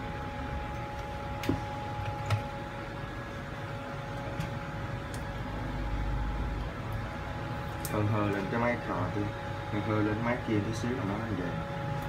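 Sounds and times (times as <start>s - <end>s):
workbench equipment humming: 0.0s - 12.0s.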